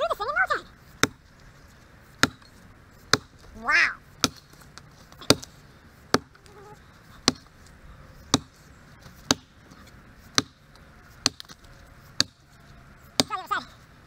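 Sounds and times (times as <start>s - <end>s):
axe chopping log: 1.0s - 1.3s, 2.2s - 2.5s, 3.1s - 3.5s, 4.2s - 5.5s, 6.1s - 6.4s, 7.2s - 7.5s, 8.3s - 9.6s, 10.3s - 10.6s, 11.2s - 11.6s, 12.2s - 12.4s.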